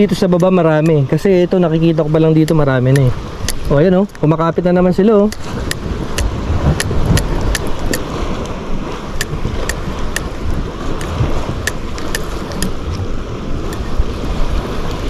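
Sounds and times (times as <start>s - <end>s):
sea washing against rocks: 0.0s - 15.0s
sharp clicks: 2.4s - 3.7s, 5.3s - 8.1s, 9.2s - 10.3s, 11.0s - 12.8s
wind noise on microphone: 5.2s - 15.0s.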